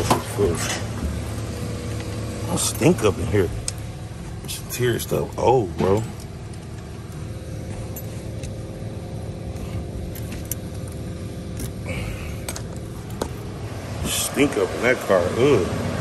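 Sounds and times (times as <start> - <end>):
car interior hum: 0.0 - 16.0.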